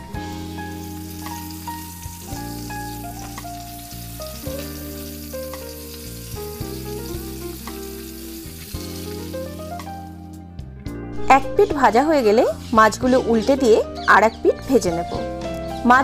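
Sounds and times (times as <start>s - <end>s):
fish sizzling in hot oil: 0.0s - 10.2s
soft background music: 0.0s - 16.0s.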